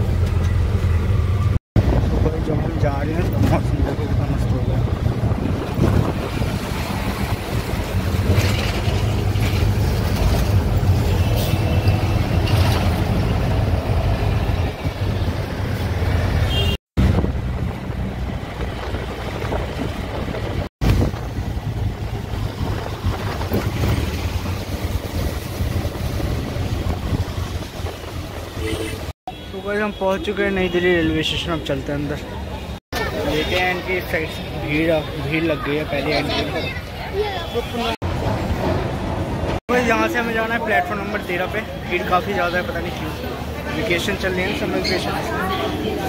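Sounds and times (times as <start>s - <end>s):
auto-rickshaw engine running: 0.0s - 15.4s
road and wind noise: 0.0s - 46.0s.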